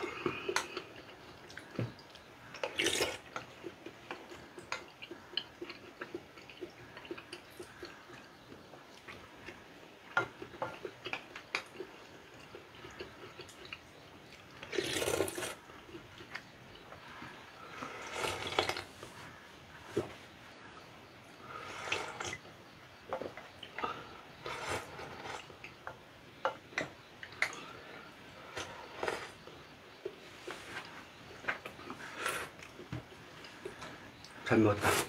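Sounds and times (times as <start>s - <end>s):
chewing: 0.0s - 20.1s, 21.3s - 34.5s
wet slurps of broth: 2.6s - 3.3s, 14.6s - 15.6s, 17.8s - 18.9s, 21.5s - 22.5s, 24.4s - 25.6s.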